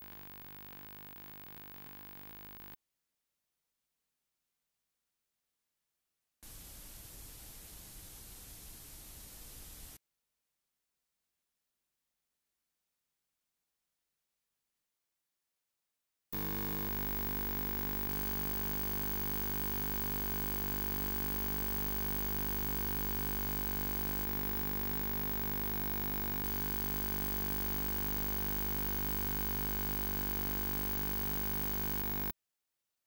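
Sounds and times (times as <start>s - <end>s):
electrical hum and buzz: 0.0s - 2.8s, 16.4s - 32.3s.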